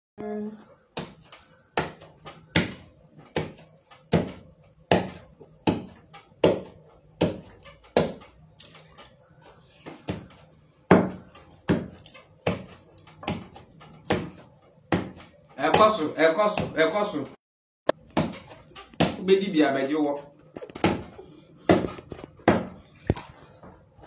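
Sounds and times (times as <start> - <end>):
pestle pounding in wooden mortar: 0.9 - 8.9, 9.8 - 16.9, 17.9 - 19.3, 20.6 - 22.8.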